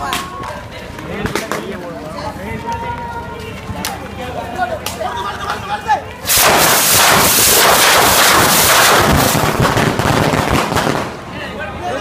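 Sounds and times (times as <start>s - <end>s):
firework crackling bangs: 6.2s - 11.4s.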